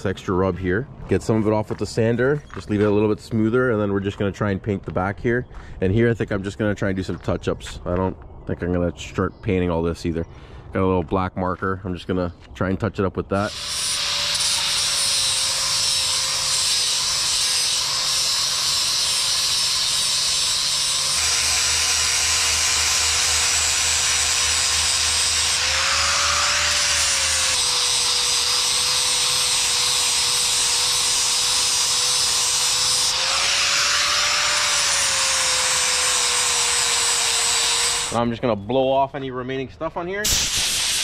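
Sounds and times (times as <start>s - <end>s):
angle grinder sanding paint: 13.4s - 38.2s, 40.3s - 41.0s.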